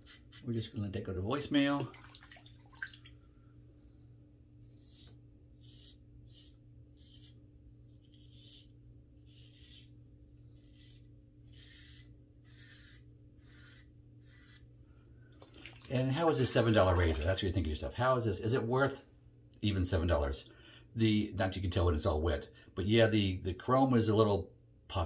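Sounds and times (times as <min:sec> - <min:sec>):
razor scraping stubble: 0:00.0 - 0:00.7, 0:04.6 - 0:14.8.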